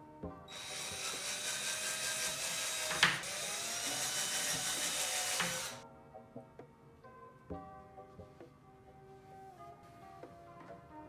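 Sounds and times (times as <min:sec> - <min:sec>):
cordless drill boring into plastic: 0:00.5 - 0:05.8.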